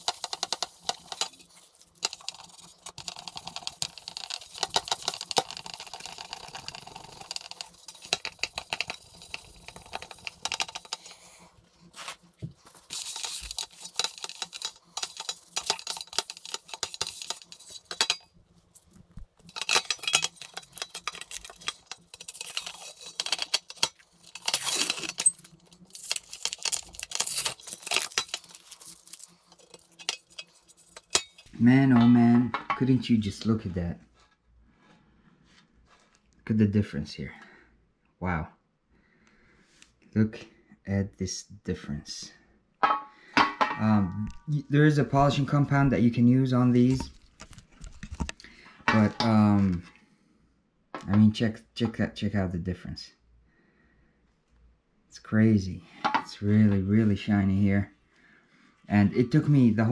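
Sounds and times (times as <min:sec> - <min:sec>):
paper towel rubbing metal: 0:00.0 - 0:31.2
sponge scrubbing metal plate: 0:00.0 - 0:31.5.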